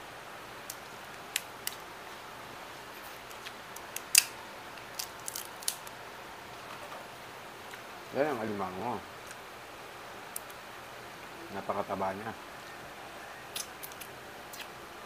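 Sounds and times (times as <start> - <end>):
crab shell cracking: 3.3 - 6.0, 13.5 - 14.7.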